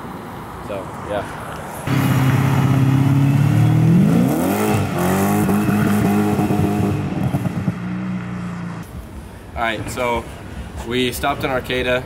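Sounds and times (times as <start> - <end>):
car engine accelerating: 1.9 - 8.8.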